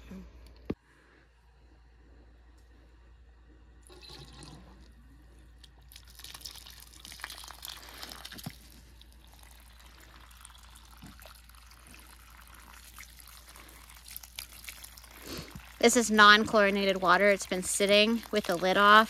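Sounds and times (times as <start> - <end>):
hose water splashing on soil: 10.9 - 19.0.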